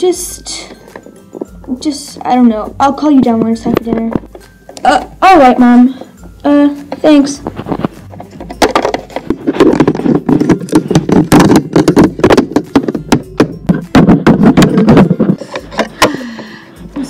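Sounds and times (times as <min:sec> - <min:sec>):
plastic toy knocking on wood: 0:08.2 - 0:16.2.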